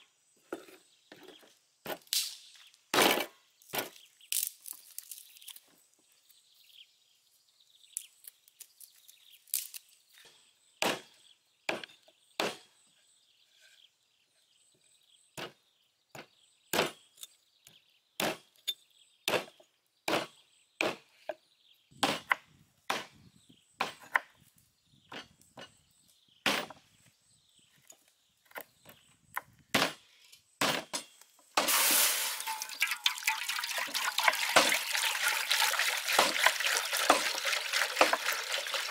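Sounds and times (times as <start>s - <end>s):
water pouring into hot wok: 31.7s - 38.9s.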